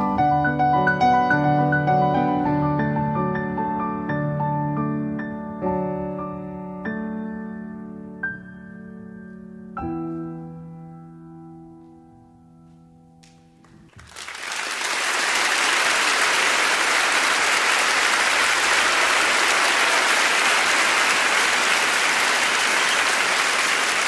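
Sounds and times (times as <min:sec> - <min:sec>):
applause: 0:13.6 - 0:24.0.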